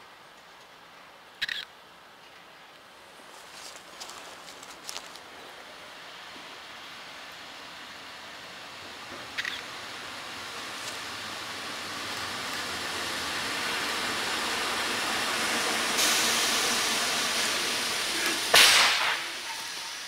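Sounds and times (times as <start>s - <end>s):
locomotive wheels rushing on rails: 3.2s - 20.0s
sudden loud burst: 18.4s - 20.0s.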